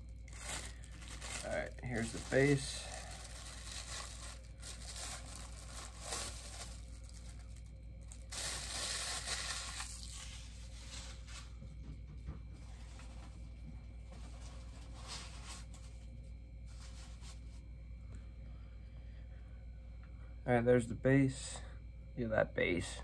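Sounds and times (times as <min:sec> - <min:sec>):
plastic bag rustling and crinkling: 0:00.0 - 0:11.6, 0:14.1 - 0:16.0, 0:16.7 - 0:17.6.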